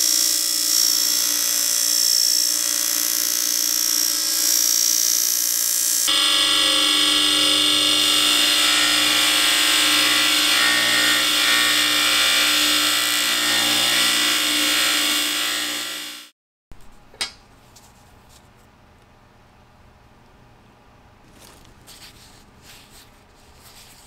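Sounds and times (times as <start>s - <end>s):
bench grinder whine: 0.0s - 16.3s.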